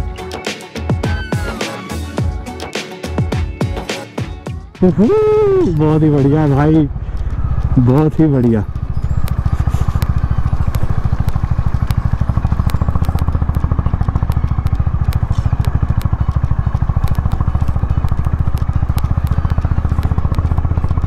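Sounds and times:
motorcycle engine running: 0:03.2 - 0:21.0
gravel ticking under tyres: 0:04.9 - 0:21.0.

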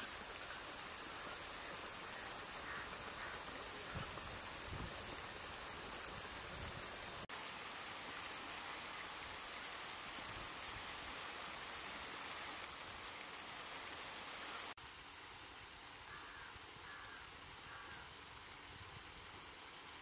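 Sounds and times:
steady hissing noise: 0:00.0 - 0:20.0.

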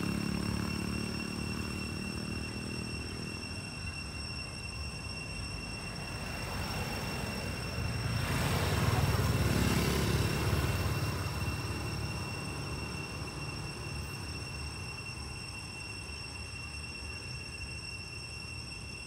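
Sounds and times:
car driving past: 0:00.0 - 0:03.9, 0:05.7 - 0:15.0.

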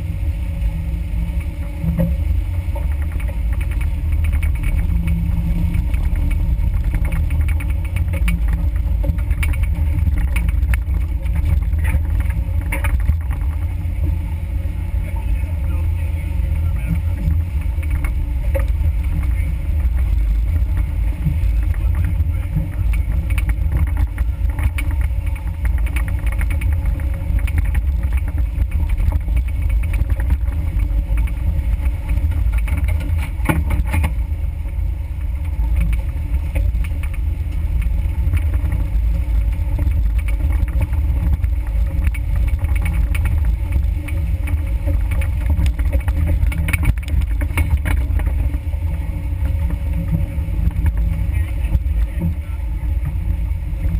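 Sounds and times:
vehicle engine rumble: 0:00.0 - 0:53.9
knocks and clunks from bumps: 0:16.8 - 0:34.2, 0:35.2 - 0:53.9.

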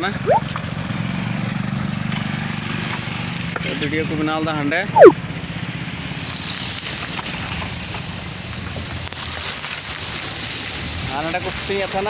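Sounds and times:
sharp falling sound: 0:05.0 - 0:05.2
tyres hissing on wet road: 0:05.3 - 0:12.0.

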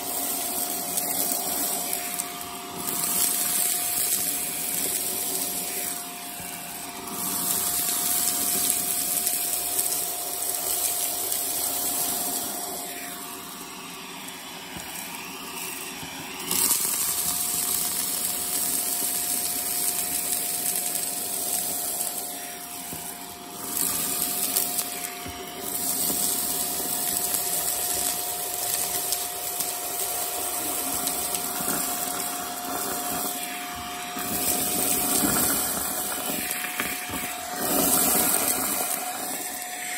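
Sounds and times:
rush of air sucking: 0:00.0 - 0:39.9
vacuum cleaner running: 0:00.0 - 0:39.9.

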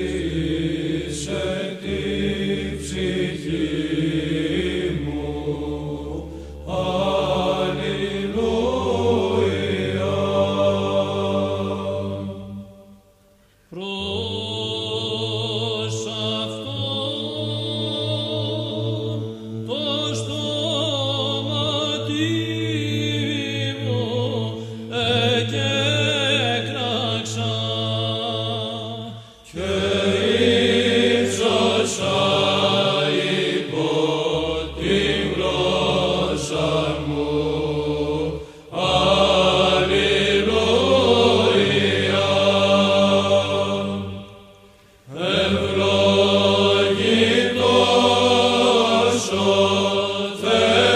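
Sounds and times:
choir chanting a melody: 0:00.0 - 0:50.9
held vocal drone: 0:00.0 - 0:50.9.

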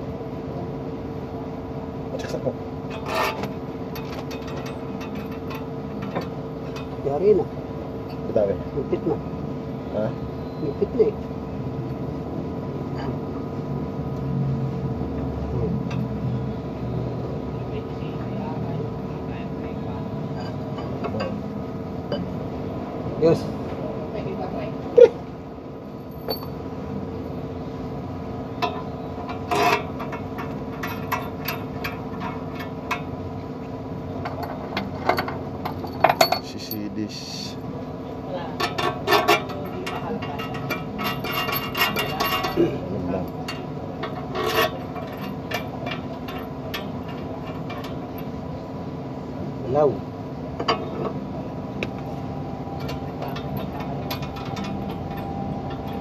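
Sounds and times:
steady mechanical hum: 0:00.0 - 0:56.0
metal clicks and knocks: 0:28.6 - 0:33.1, 0:52.7 - 0:56.0.

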